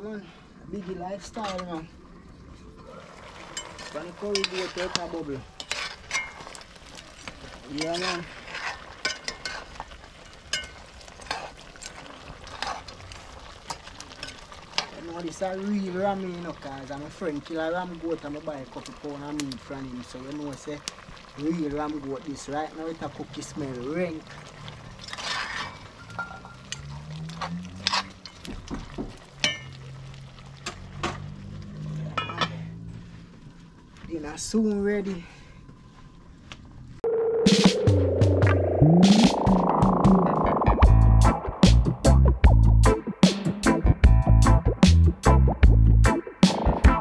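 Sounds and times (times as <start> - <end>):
pot simmering: 0.0 - 34.6
metal spoon scraping a pot: 3.6 - 6.6, 7.8 - 9.8, 25.0 - 28.4.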